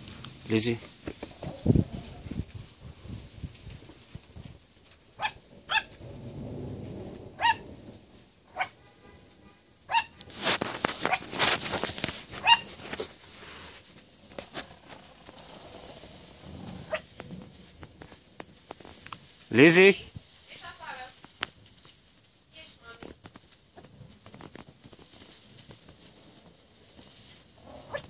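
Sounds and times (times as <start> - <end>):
rough noise: 0.0 - 22.0, 22.6 - 28.0
puppy yapping: 5.2 - 5.9, 7.4 - 7.6, 8.6 - 8.8, 9.9 - 10.1, 12.4 - 12.7.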